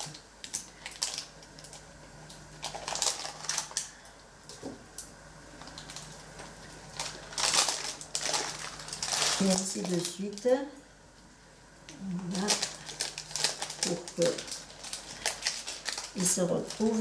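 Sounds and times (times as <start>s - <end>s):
faint steady hum: 0.0s - 17.0s
parchment paper rustling: 2.6s - 4.0s, 5.6s - 10.6s, 12.1s - 17.0s.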